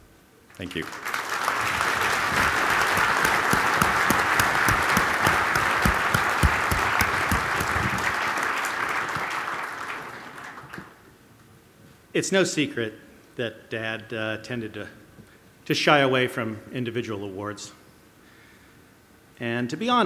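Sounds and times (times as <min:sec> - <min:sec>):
large audience applauding: 0:00.6 - 0:11.0.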